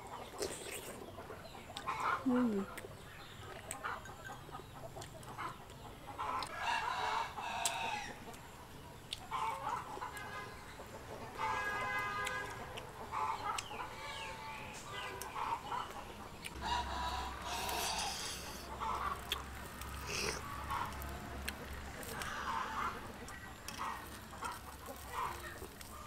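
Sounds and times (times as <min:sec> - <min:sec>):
chickens clucking: 0:00.0 - 0:26.0
rooster crowing: 0:06.5 - 0:08.2, 0:16.6 - 0:18.4.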